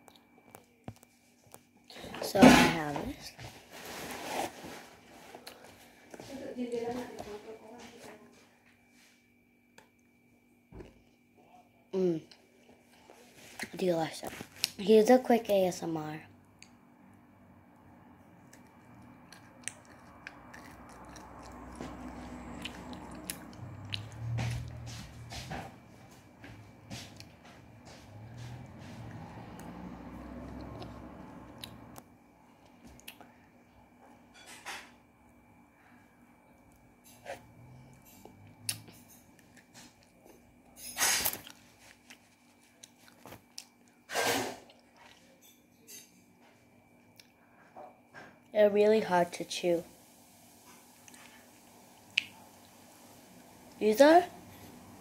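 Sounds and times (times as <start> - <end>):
low hum: 16.3 - 32.8
chewing hard chocolate crunches: 18.4 - 24.7.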